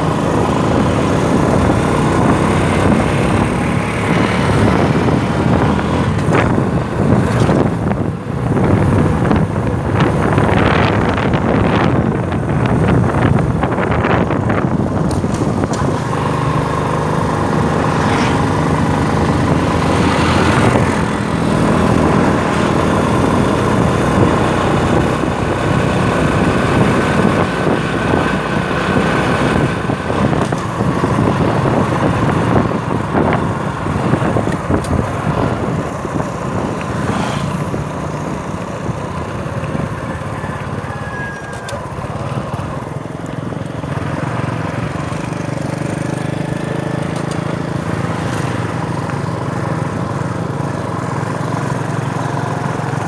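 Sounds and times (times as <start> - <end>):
constant rushing noise: 0.0 - 53.0
small engine running: 14.1 - 53.0.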